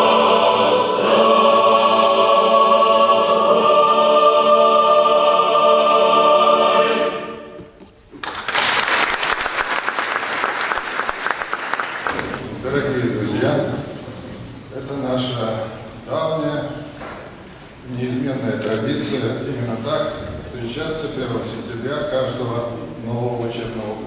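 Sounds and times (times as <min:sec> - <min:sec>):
choir singing sustained chord: 0:00.0 - 0:07.7
audience applause: 0:08.2 - 0:12.6.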